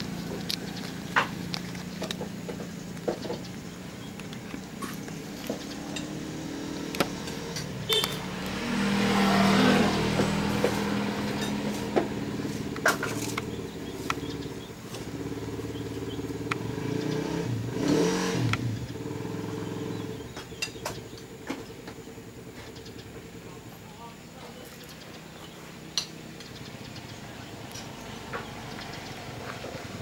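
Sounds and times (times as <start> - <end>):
sharp clicks: 0.0 - 9.4, 10.1 - 15.1, 15.8 - 19.0
vehicle engines running: 0.0 - 30.0.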